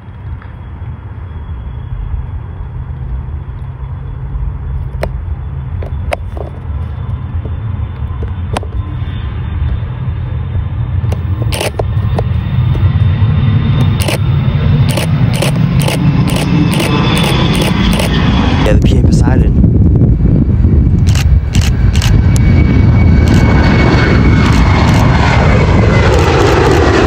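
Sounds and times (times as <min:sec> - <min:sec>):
faint high whine: 0:00.0 - 0:19.5
jet engines rumbling: 0:00.0 - 0:27.0.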